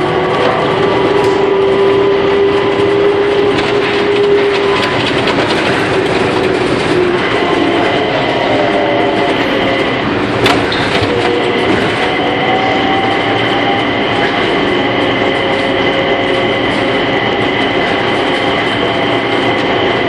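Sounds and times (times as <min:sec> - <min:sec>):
train running with electric whine: 0:00.0 - 0:20.0.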